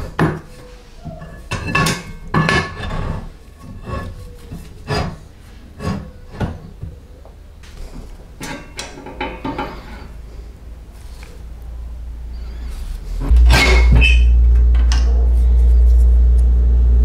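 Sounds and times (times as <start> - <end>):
metal parts knocking and scraping: 0.0 - 6.8, 8.4 - 10.1, 13.2 - 15.2.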